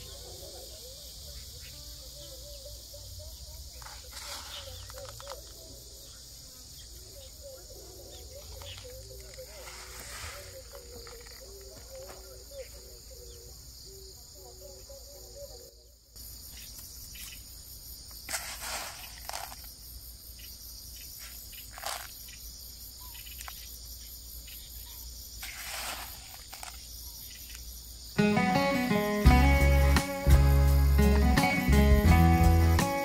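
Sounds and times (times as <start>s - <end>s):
insects chirping: 0.0s - 33.0s
granules rustling in plastic bowl: 3.8s - 5.4s, 18.3s - 19.8s, 21.7s - 22.2s, 25.4s - 26.8s.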